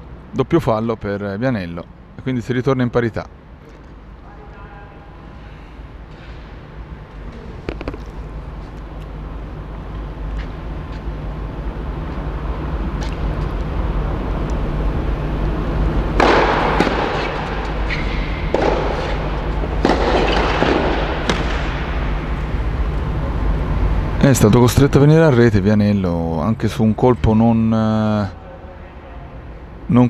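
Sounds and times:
low hum: 0:01.4 - 0:30.0
noisy bursts: 0:01.8 - 0:30.0
racket hitting tennis ball: 0:07.3 - 0:08.2, 0:16.1 - 0:22.5.

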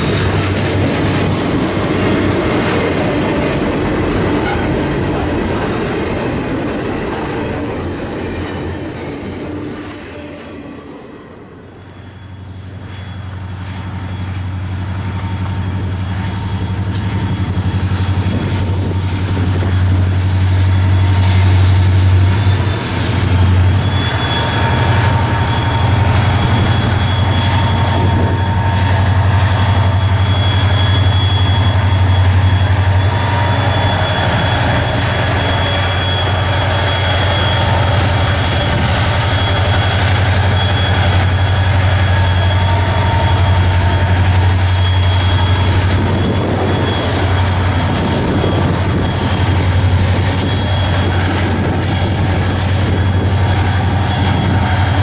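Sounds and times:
diesel locomotive engine drone: 0:00.0 - 0:55.0
steady high whine: 0:11.0 - 0:55.0.

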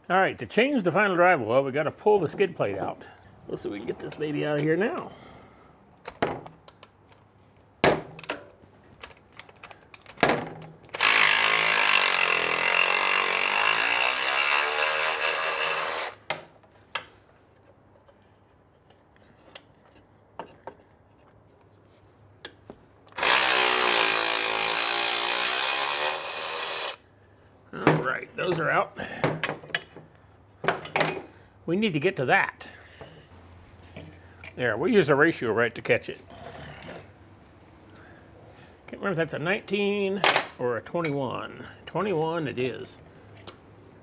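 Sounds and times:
cordless power tool spinning bolts: 0:10.9 - 0:16.2, 0:23.2 - 0:27.0.

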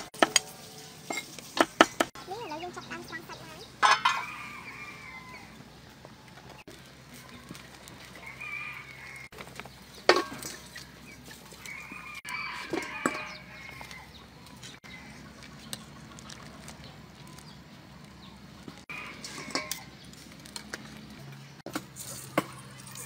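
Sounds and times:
metal skimmer clinking on wok: 0:19.0 - 0:19.9.

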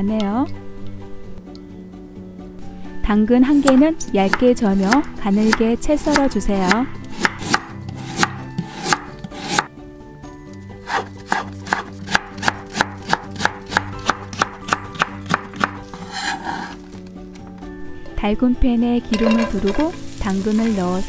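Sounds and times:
knife chopping on wooden board: 0:03.6 - 0:09.7, 0:10.8 - 0:16.8.

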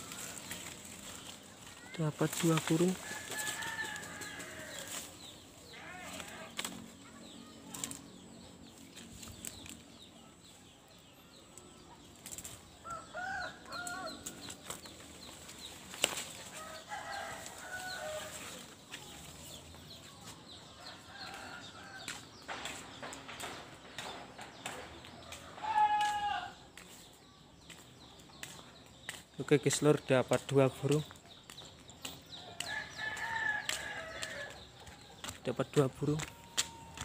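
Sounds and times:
birds fluttering wings: 0:00.0 - 0:05.4.

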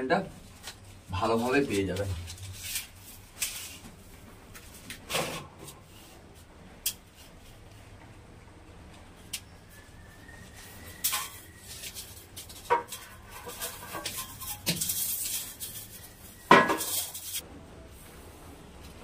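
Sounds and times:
scraping and rattling: 0:10.6 - 0:17.4.

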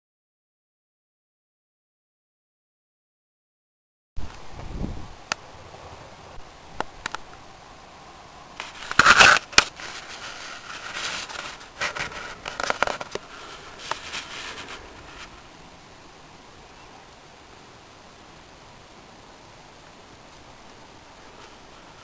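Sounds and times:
microphone handling noise: 0:04.2 - 0:05.1.

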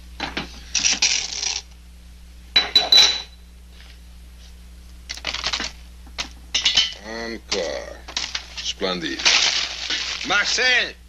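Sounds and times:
bright ring: 0:02.6 - 0:03.5
hard sweets clattering: 0:06.8 - 0:10.6.

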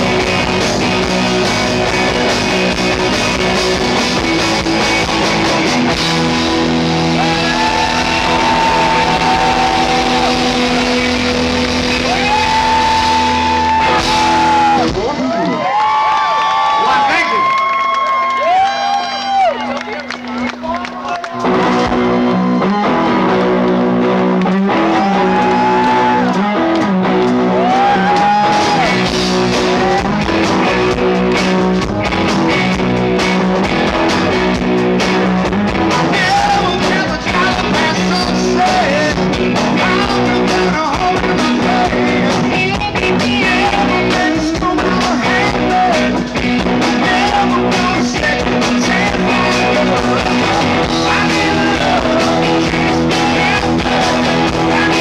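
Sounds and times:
drum kit: 0:00.0 - 0:15.4, 0:21.3 - 0:55.0
bass: 0:00.0 - 0:55.0
crowd noise: 0:00.0 - 0:55.0
electric guitars: 0:00.0 - 0:55.0.

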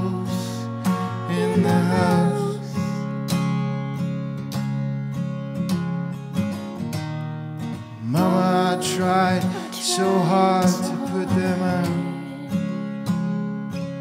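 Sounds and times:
strummed acoustic guitar: 0:00.0 - 0:14.0
man singing held notes: 0:08.2 - 0:12.5.

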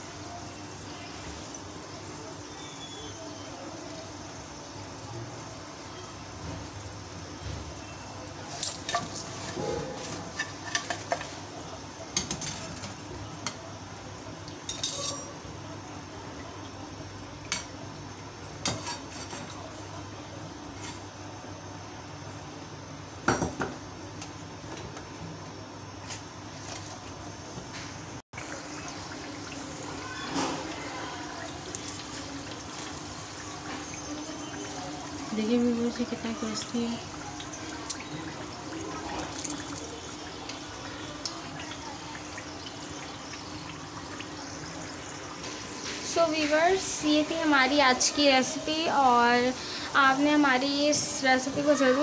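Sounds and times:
deep-frying in hot oil sizzle: 0:00.0 - 0:52.0
metal spoon clinking on pan: 0:14.7 - 0:15.4.

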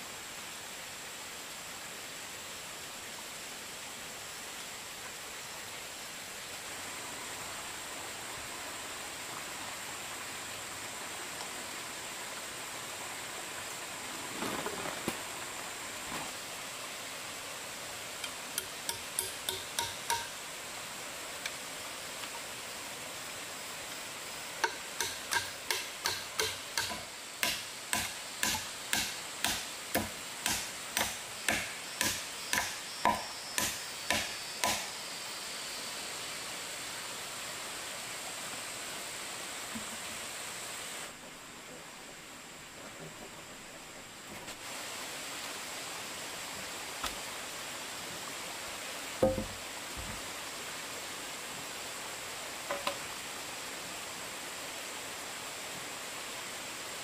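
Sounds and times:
steady hiss: 0:00.0 - 0:57.0
hand tool strikes: 0:18.2 - 0:20.4, 0:24.6 - 0:35.0, 0:49.2 - 0:49.6.

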